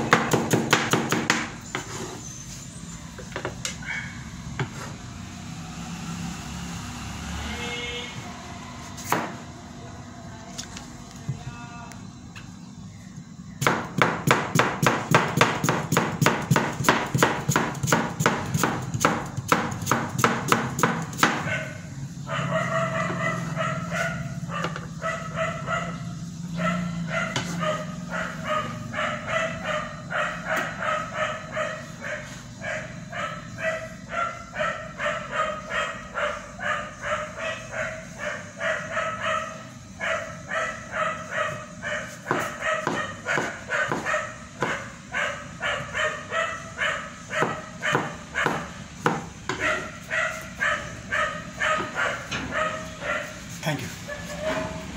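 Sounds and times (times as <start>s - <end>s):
cleaver chopping cabbage on board: 0.0s - 1.5s, 13.6s - 21.5s, 42.2s - 44.8s, 47.4s - 49.7s.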